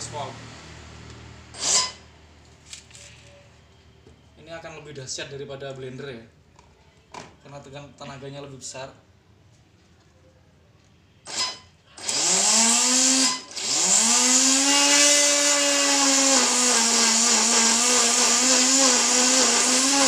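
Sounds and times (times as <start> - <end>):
electric motor whining: 11.3 - 20.0.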